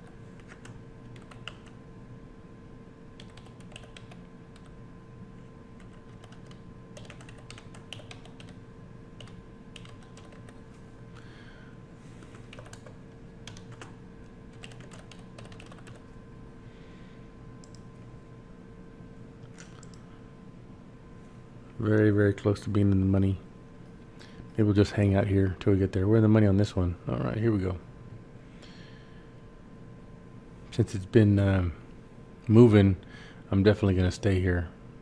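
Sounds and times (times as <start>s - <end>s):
faint electrical hum: 0.0s - 35.0s
typing on computer keyboard: 0.4s - 1.8s, 3.2s - 4.8s, 5.8s - 8.6s, 9.2s - 10.6s, 12.2s - 16.1s.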